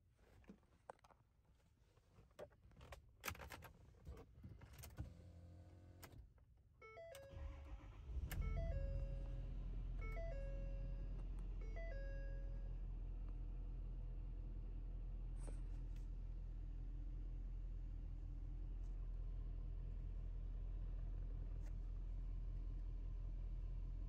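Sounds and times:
diesel engine starting and idling: 7.0 - 15.4
two-tone dashboard chime: 8.4 - 12.7.

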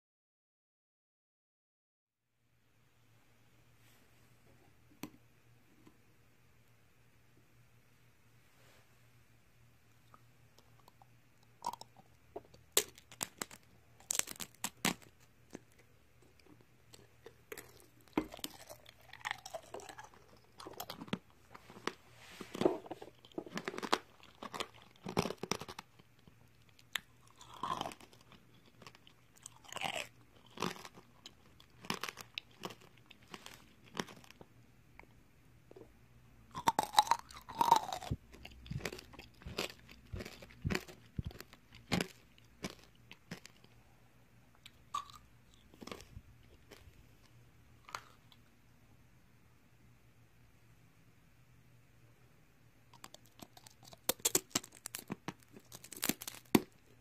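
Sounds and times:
candy shell crunching in bites: 11.6 - 34.5, 36.5 - 43.8, 44.6 - 47.0, 53.0 - 57.0.

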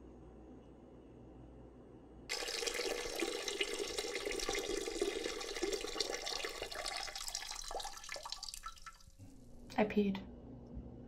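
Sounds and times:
urine splashing into toilet water: 2.3 - 9.2.

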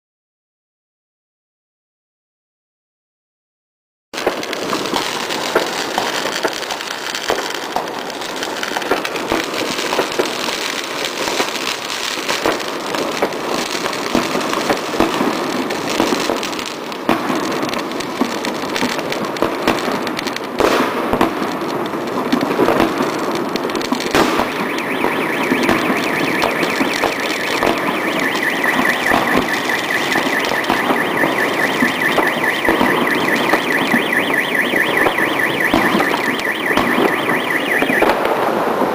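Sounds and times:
fireworks crackling and banging: 4.2 - 38.9
car alarm tone: 24.1 - 38.2.

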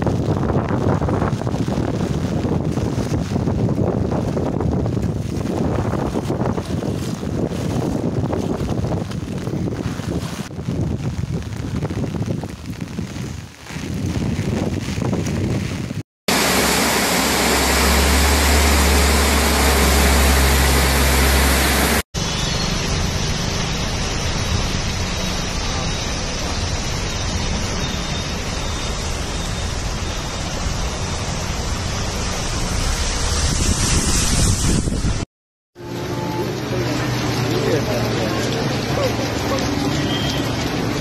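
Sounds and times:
traffic on flooded street: 0.0 - 12.8, 16.3 - 35.2, 35.8 - 41.0
wind buffeting microphone: 0.0 - 16.0, 33.2 - 35.2
water hissing on street: 0.1 - 35.2, 35.8 - 41.0.

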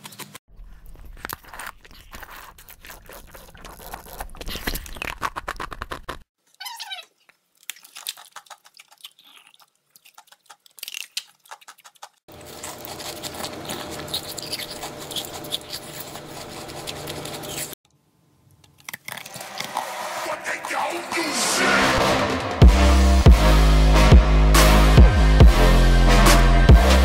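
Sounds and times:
ice cracking when bitten: 0.0 - 6.2, 7.6 - 17.7
crunching and chewing: 0.0 - 6.3, 7.0 - 17.8, 18.4 - 21.0.

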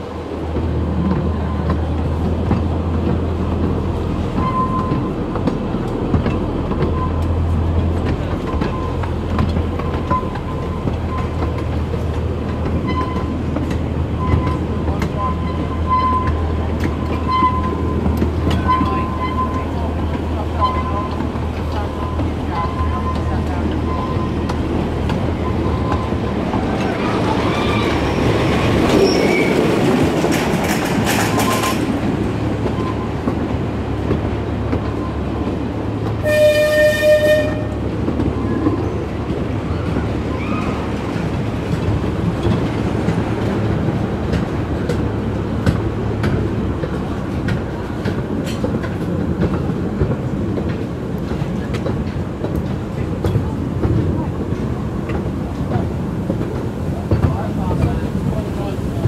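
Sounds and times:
train wheels rumbling on track: 0.0 - 59.0
locomotive toot: 4.3 - 5.2, 6.8 - 11.7, 12.7 - 13.4, 14.1 - 24.6, 36.2 - 38.7.

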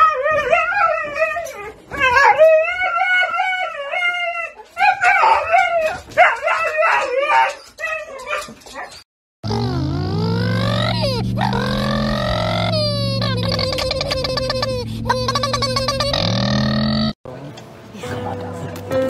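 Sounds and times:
dog howling and yowling: 0.0 - 9.0, 10.2 - 13.8.

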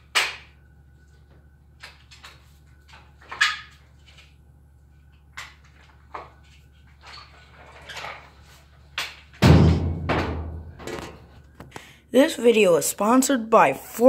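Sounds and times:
sharp knocks and bumps: 9.4 - 11.3.

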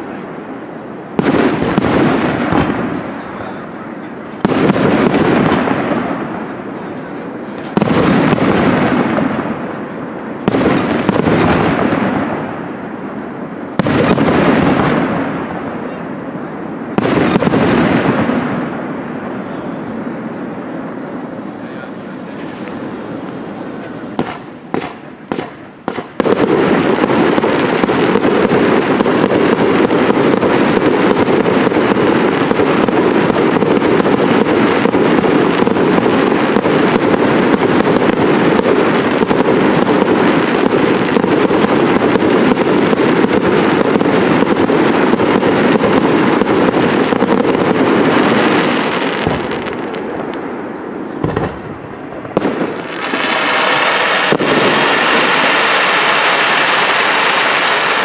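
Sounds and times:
fireworks bangs: 0.0 - 58.0.

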